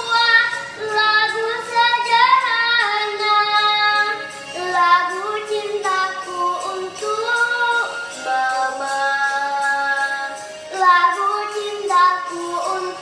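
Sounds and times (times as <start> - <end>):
girl singing: 0.0 - 13.0
musical accompaniment: 0.0 - 13.0.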